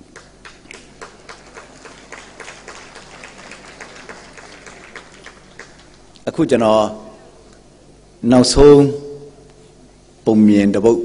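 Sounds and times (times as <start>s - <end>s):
faint audience clapping: 0.0s - 6.4s.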